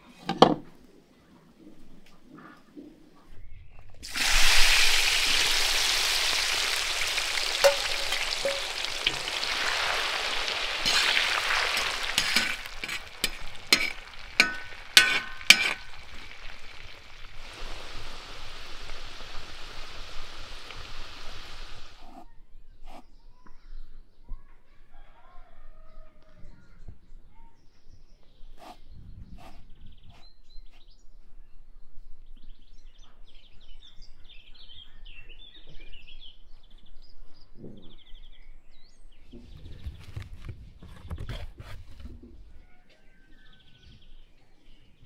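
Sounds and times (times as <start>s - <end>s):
potatoes sizzling in hot oil: 4.0s - 22.1s
utensil clicking against pan: 10.8s - 16.2s.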